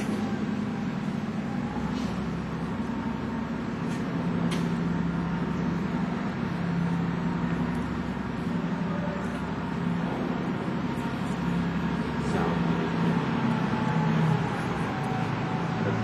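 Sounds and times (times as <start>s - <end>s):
paper pulp machinery running: 0.0s - 16.0s.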